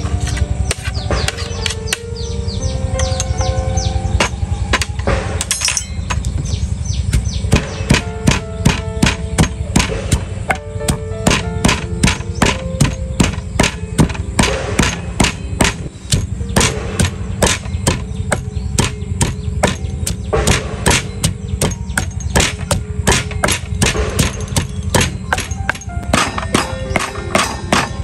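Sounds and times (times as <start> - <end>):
rapid knocking of food preparation: 7.1 - 28.0.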